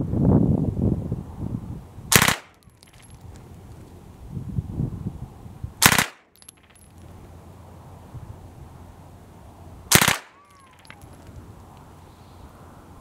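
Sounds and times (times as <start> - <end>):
submachine gun burst: 5.8 - 6.2, 9.9 - 10.3.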